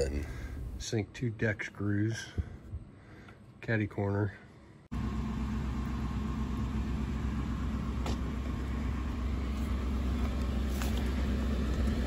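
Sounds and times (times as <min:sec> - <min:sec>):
truck engine idling: 0:04.9 - 0:12.0.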